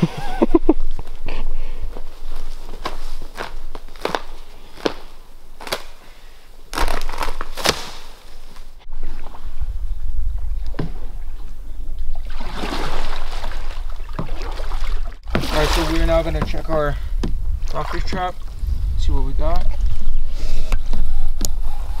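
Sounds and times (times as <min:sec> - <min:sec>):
footsteps through wet undergrowth: 0:02.0 - 0:06.0, 0:06.7 - 0:08.8
low rumble: 0:08.8 - 0:13.1
paddle strokes splashing water: 0:12.1 - 0:16.6.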